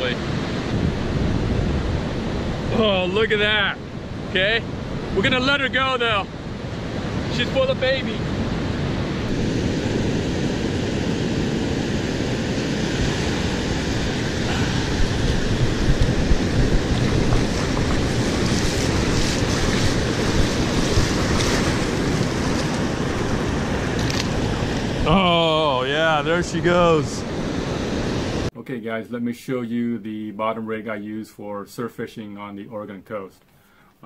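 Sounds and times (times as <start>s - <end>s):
ocean surf on sandy beach: 0.0s - 28.5s
wind buffeting microphone: 0.0s - 28.5s.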